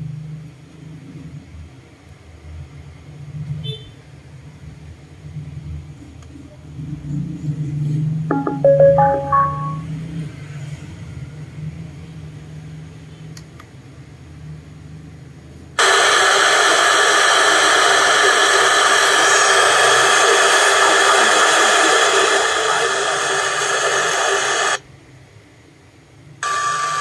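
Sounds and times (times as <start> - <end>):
radio static hiss: 15.8 - 24.8.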